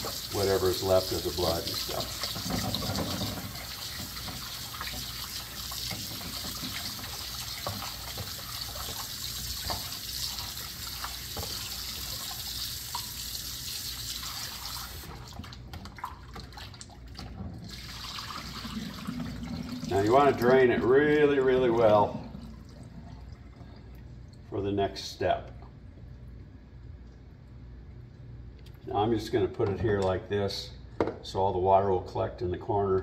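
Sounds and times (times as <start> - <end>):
tap running into a container: 5.8 - 10.0, 11.1 - 12.0.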